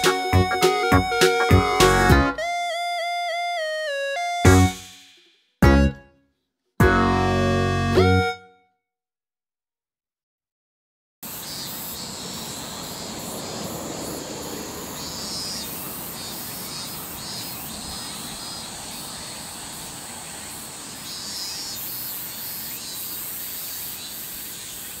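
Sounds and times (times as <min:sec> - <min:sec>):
cicadas buzzing: 0:11.2 - 0:25.0.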